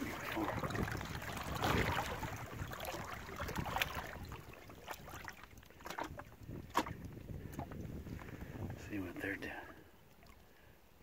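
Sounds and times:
fish splashing at the surface: 0.0 - 7.0.

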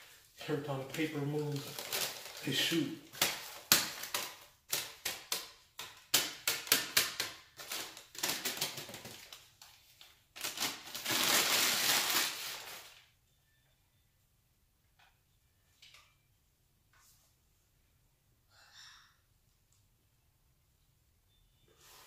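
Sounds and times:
newspaper crinkling and crackling: 0.0 - 13.1
newspaper rustling as crumpled: 0.0 - 13.1.

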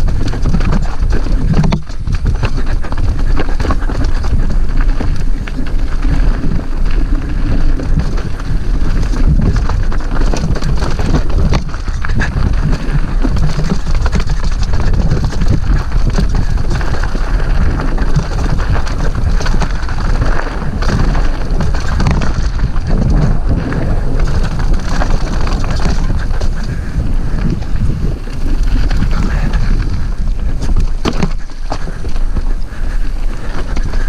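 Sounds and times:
bike rattling: 0.0 - 34.0
tyres crunching over stones: 0.0 - 34.0
wind rumble on microphone: 0.0 - 34.0.

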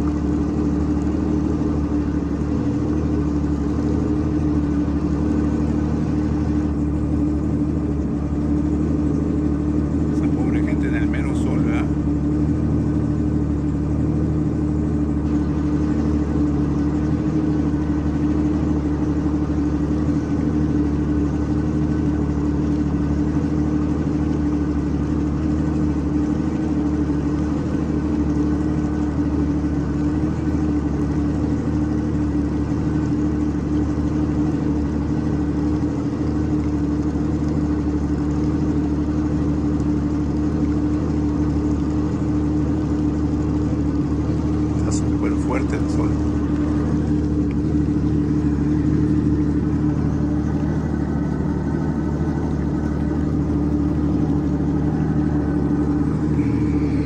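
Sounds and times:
watercraft engine droning: 0.0 - 57.0.

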